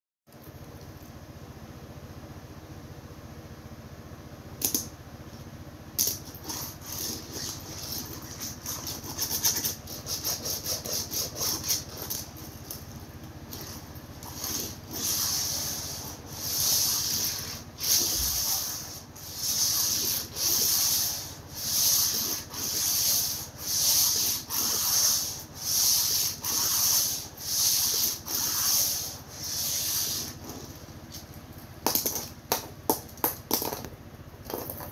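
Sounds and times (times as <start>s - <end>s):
toy car wheels scraping: 6.0s - 31.2s.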